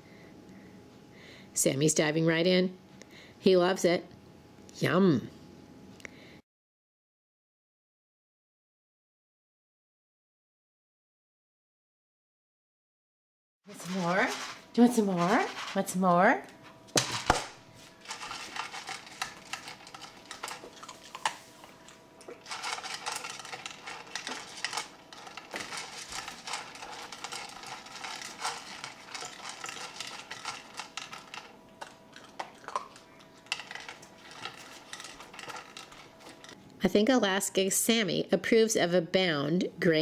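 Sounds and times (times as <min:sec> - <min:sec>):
kibble clattering in plastic bowl: 0:17.0 - 0:21.4, 0:22.3 - 0:36.6
dog crunching dry kibble: 0:17.0 - 0:36.6.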